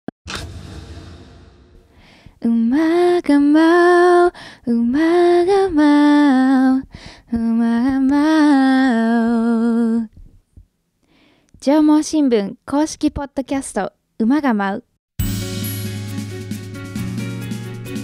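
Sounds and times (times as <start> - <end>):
woman singing slow melody: 2.4 - 10.2.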